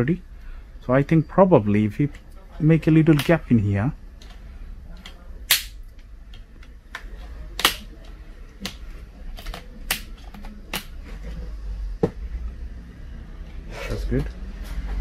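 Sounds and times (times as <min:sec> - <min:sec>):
plastic clips popping loose: 0:05.0 - 0:07.9.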